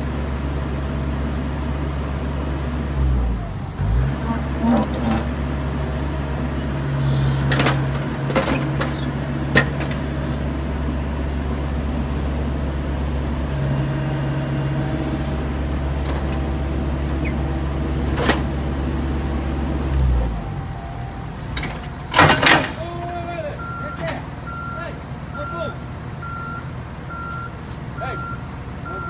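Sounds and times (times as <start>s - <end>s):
diesel engines running: 0.0s - 29.0s
knocks and clanks: 7.4s - 10.1s, 18.0s - 20.1s, 21.5s - 23.2s.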